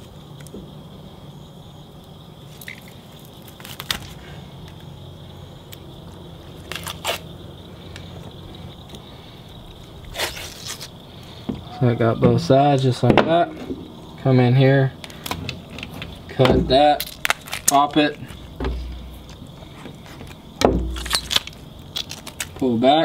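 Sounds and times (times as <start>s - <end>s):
steady low hum: 0.0s - 22.8s
fish skin tearing: 3.4s - 4.2s, 6.6s - 7.3s, 17.0s - 17.8s, 21.0s - 22.6s.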